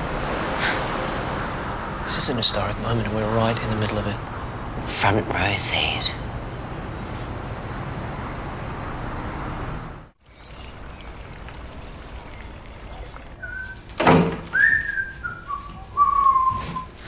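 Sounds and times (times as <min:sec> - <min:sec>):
background hiss: 0:10.2 - 0:16.3
person whistling a tune: 0:14.5 - 0:17.0.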